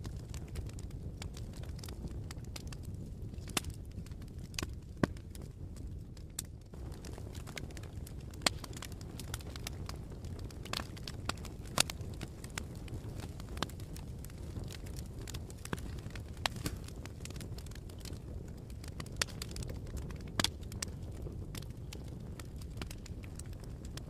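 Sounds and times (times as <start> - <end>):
fire crackling and popping: 0.0 - 24.0
low rumble of flames: 0.0 - 24.0.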